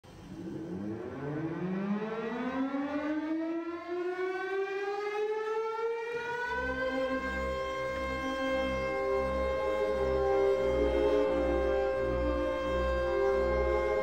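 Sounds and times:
siren wailing: 0.3 - 14.0
low steady tones: 6.5 - 14.0.

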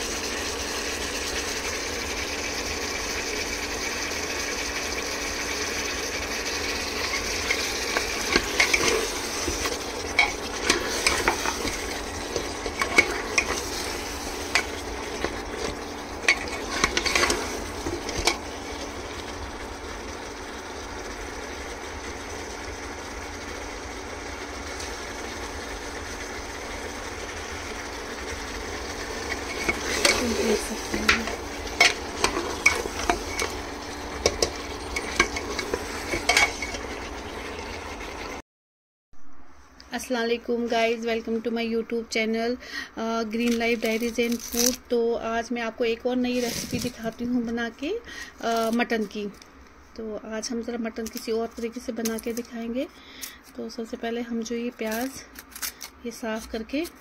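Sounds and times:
meat sizzling in oil: 0.0 - 38.4
spoon scraping a pot: 6.9 - 18.4, 29.2 - 37.0.

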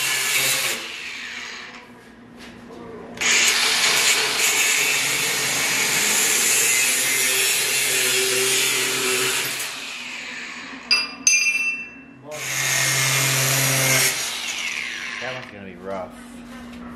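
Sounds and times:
angle grinder cutting steel: 0.0 - 1.7, 3.2 - 10.9, 12.4 - 15.5.

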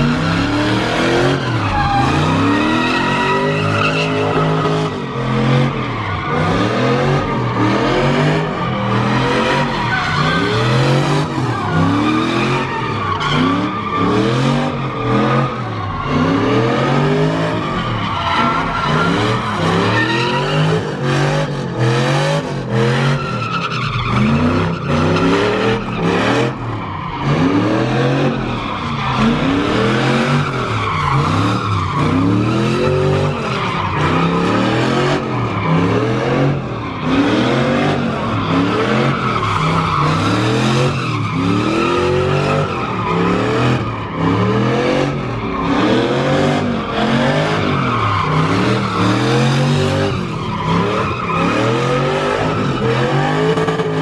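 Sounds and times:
truck engine revving: 0.0 - 54.0
tyres screeching on asphalt: 0.0 - 54.0.

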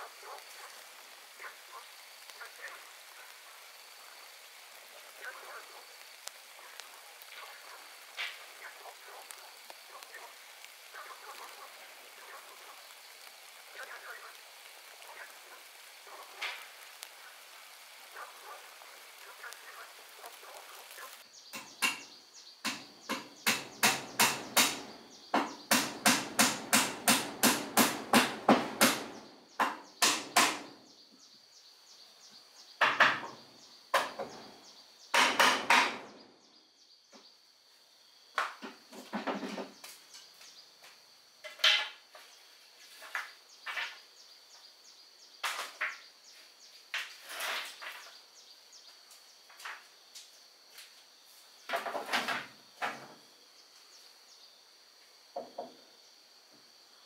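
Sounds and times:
hammer blows on wood: 21.6 - 30.7.

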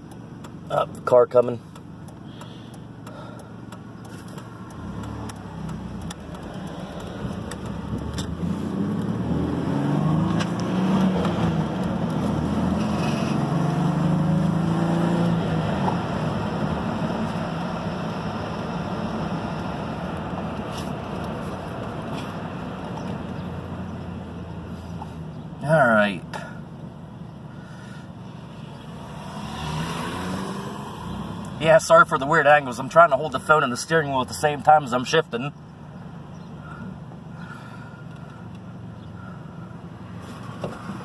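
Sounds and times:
pickup engine accelerating: 0.0 - 41.0
road noise: 0.0 - 41.0.

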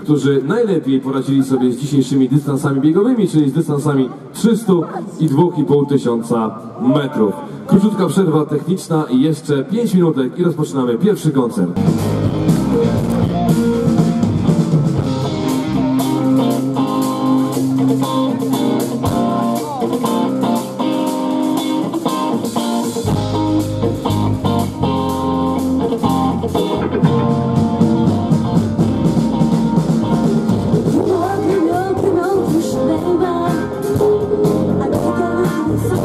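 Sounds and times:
bass guitar: 11.8 - 36.0
electric guitars: 11.8 - 36.0
steady drum beat: 11.8 - 36.0.

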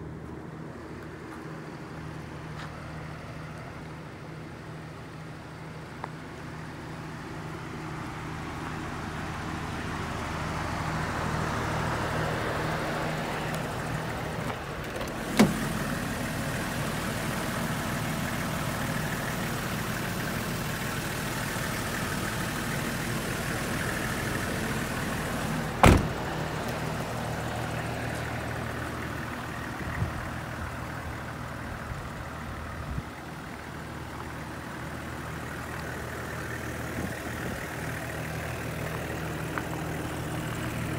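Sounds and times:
diesel engine idling: 0.0 - 40.9
bus door slamming shut: 14.9 - 15.6, 25.8 - 26.3.

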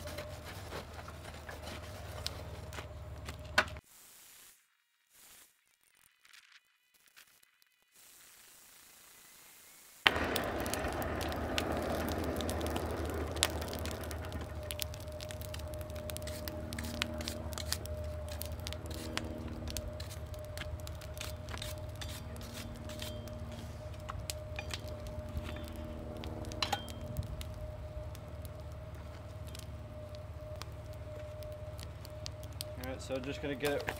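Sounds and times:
forge fire crackling and popping: 0.0 - 3.8, 5.0 - 33.9
low rumble: 10.1 - 33.9
thin steady hum: 10.1 - 33.9.

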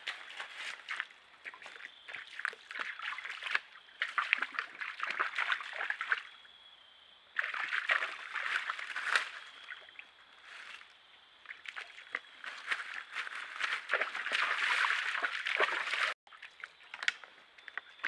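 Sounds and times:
deer scuffling in dry leaves: 0.0 - 1.1, 10.4 - 10.8, 12.1 - 16.1.

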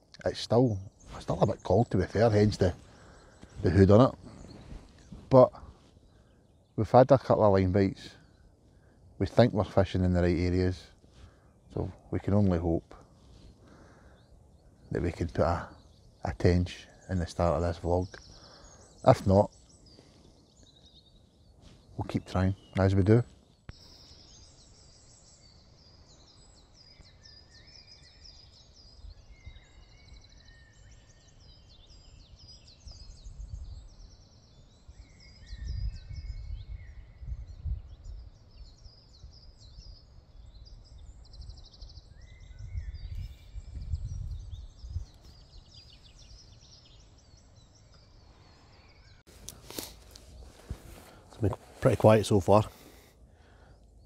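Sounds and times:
small birds chirping: 0.0 - 54.0
low rumbles on microphone: 42.6 - 46.5.

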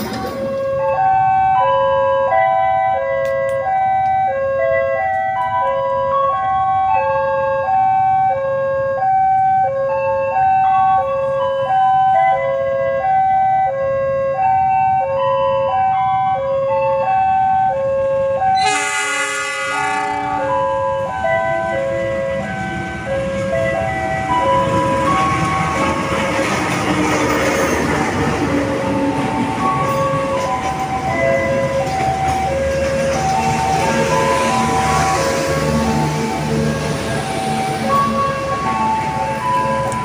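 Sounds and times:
railway warning alarm tones: 0.0 - 40.0.

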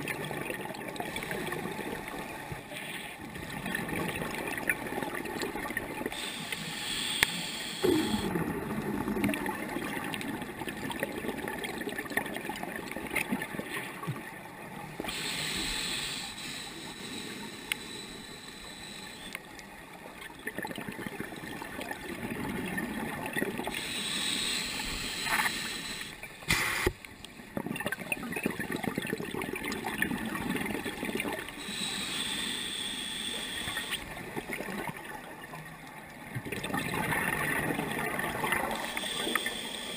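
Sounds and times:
regulator hissing inhale: 6.1 - 8.3, 15.1 - 19.4, 23.7 - 26.9, 31.6 - 34.0, 38.7 - 39.9.

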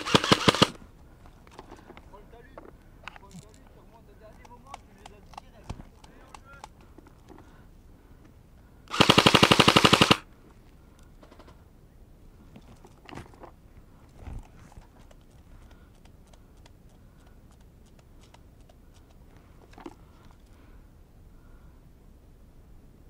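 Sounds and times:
airsoft rifle full-auto burst: 0.0 - 0.8, 8.9 - 10.3.

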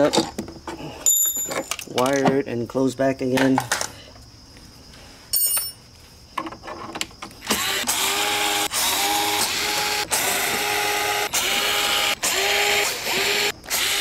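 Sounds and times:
cordless drill whining: 7.4 - 14.0.

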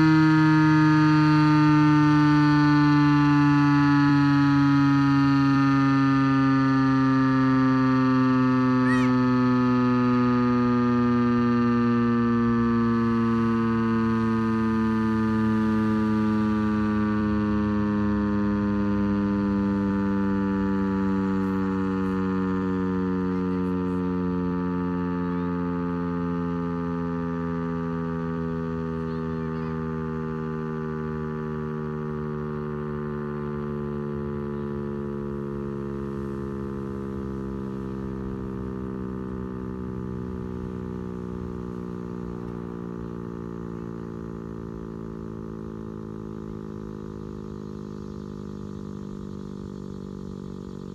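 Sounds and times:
warning siren winding down: 0.0 - 50.9.

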